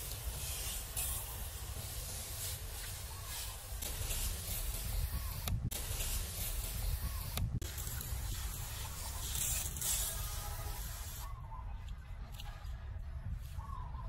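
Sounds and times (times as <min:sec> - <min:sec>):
pressure sprayer hissing: 0:00.0 - 0:11.2.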